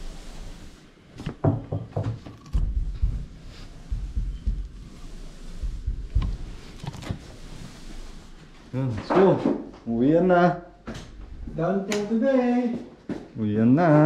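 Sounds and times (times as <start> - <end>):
dull low thumps: 2.5 - 6.8.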